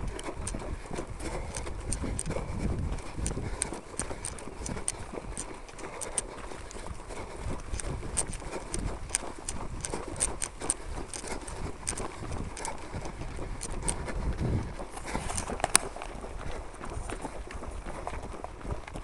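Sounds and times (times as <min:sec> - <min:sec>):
sharp clicks: 0:00.0 - 0:14.2
runners footsteps on dirt path: 0:00.0 - 0:19.0.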